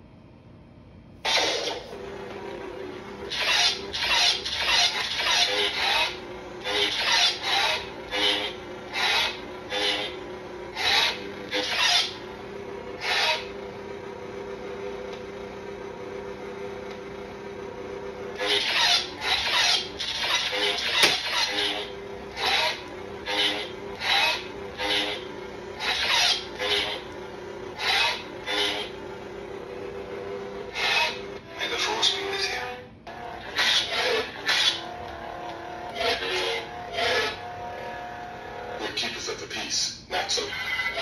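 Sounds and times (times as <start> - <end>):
toy lightsaber hum: 1.2 - 2.0, 3.2 - 13.6, 18.4 - 29.0, 30.7 - 39.2, 40.4 - 41.0.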